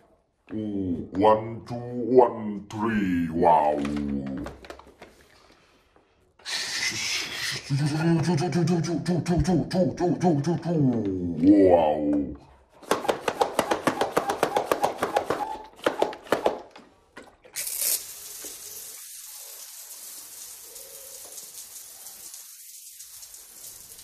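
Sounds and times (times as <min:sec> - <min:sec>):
toy water gun spraying hiss: 0:17.6 - 0:24.0.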